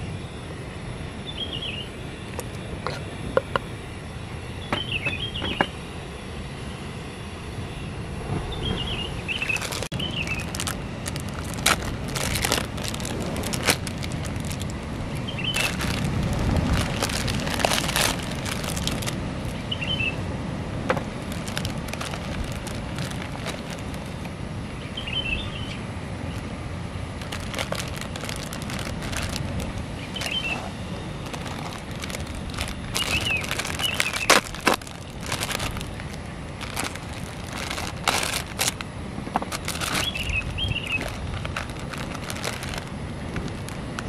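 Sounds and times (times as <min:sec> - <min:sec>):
low rumble of surf: 0:07.2 - 0:38.0
plastic packaging crinkling: 0:09.4 - 0:19.6, 0:21.0 - 0:24.3, 0:27.2 - 0:30.6, 0:31.2 - 0:44.0.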